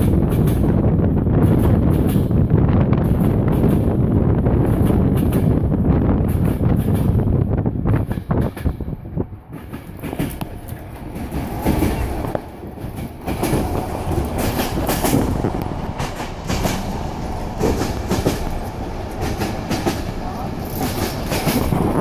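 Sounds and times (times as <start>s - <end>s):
train rumbling on rails: 0.0s - 22.0s
wheels knocking over rail joints: 9.5s - 22.0s.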